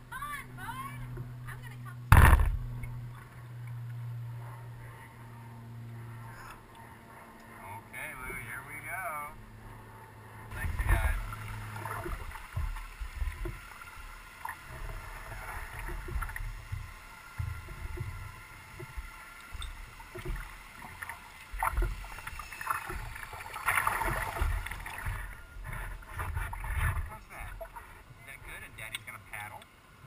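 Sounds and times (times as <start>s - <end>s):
low thumps against hull: 2.1s - 3.4s, 10.5s - 28.5s
paddle splashing in water: 10.5s - 28.0s.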